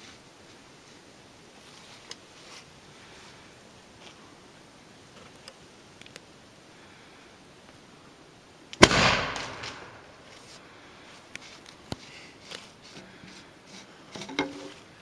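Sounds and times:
potato cannon boom: 8.8s - 10.0s.

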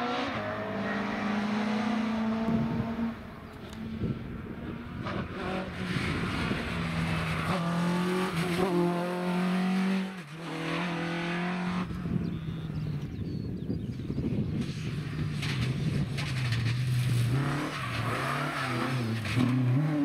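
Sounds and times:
rally car engine passing: 0.0s - 12.2s.

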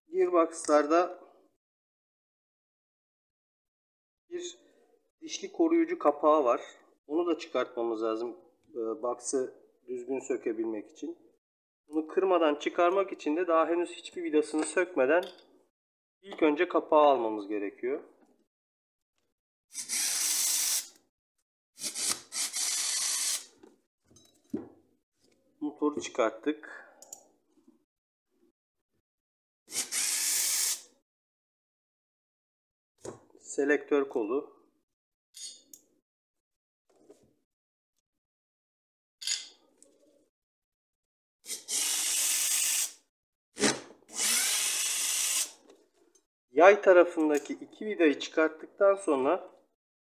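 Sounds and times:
electric screwdriver running: 21.8s - 23.4s, 29.7s - 30.8s, 41.5s - 42.9s, 44.1s - 45.5s.

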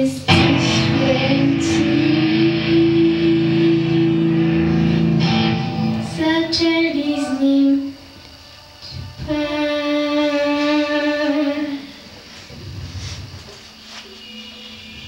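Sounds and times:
girl singing into microphone: 0.0s - 12.0s
instrumental accompaniment: 0.3s - 7.6s.

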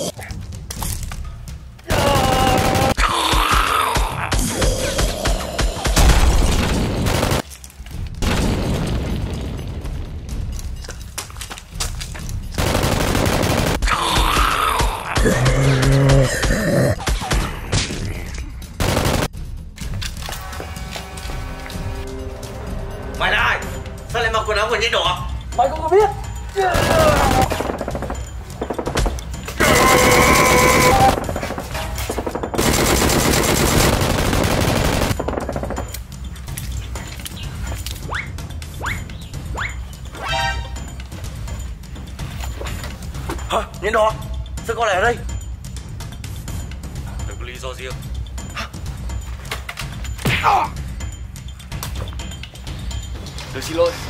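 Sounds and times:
rapid gunfire: 1.9s - 3.0s, 5.7s - 7.4s, 12.6s - 14.0s, 18.8s - 19.4s, 26.8s - 35.9s
rapid machine-gun fire: 1.9s - 3.0s, 6.0s - 7.4s, 12.6s - 13.9s, 18.8s - 19.3s, 26.8s - 28.9s, 29.6s - 31.6s, 32.2s - 35.8s.

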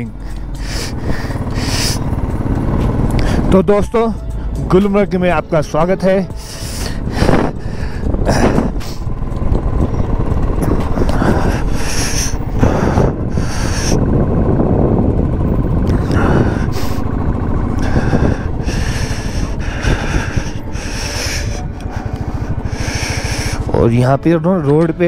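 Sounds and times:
motorcycle moving: 0.0s - 25.0s
wind noise on microphone: 6.7s - 23.8s.

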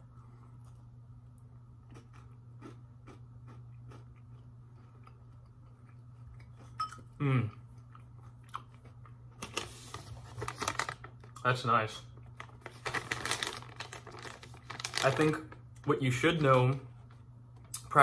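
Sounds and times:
crunchy candy chewing: 1.8s - 9.5s
person humming mm: 7.2s - 7.6s.

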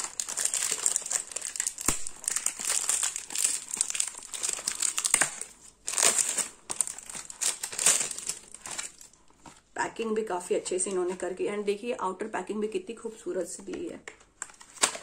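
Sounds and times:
plastic wrapping crinkling: 0.0s - 9.7s.

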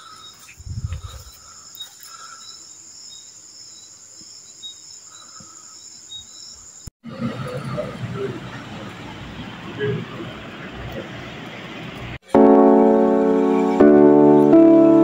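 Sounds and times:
crickets chirring: 0.0s - 6.9s.

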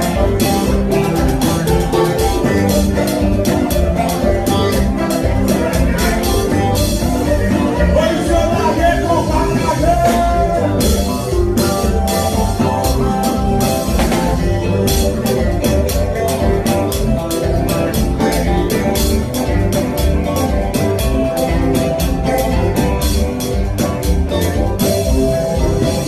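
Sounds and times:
drum kit beat: 0.0s - 26.0s
electric guitar: 0.0s - 26.0s
keyboard: 0.0s - 26.0s.

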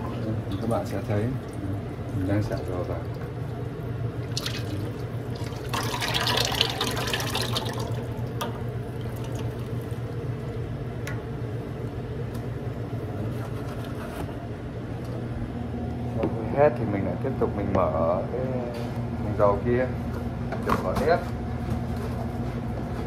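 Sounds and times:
steady low hum: 0.0s - 23.0s
oil pouring into metal vat: 4.3s - 9.9s.

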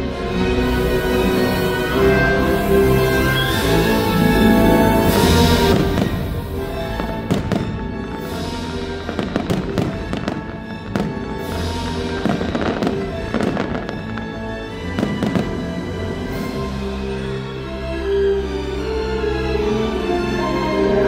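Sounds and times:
soundtrack music: 0.0s - 21.0s
fireworks bursting and crackling: 0.8s - 16.8s.

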